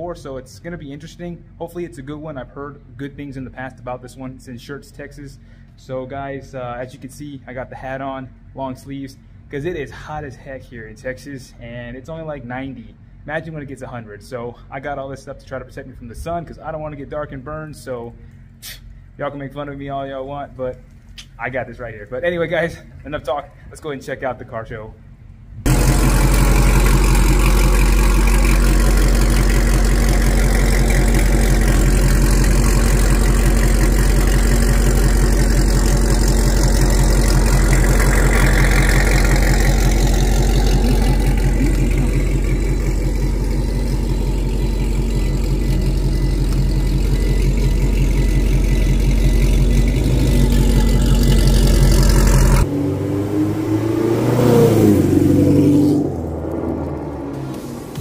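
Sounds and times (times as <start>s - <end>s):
car engine cruising drone: 24.4s - 58.0s
engine revving up: 25.7s - 58.0s.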